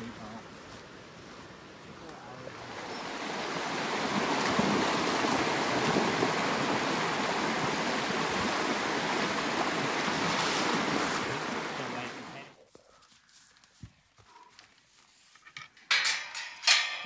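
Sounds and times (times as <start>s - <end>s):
river rushing over rocks: 2.5s - 12.4s.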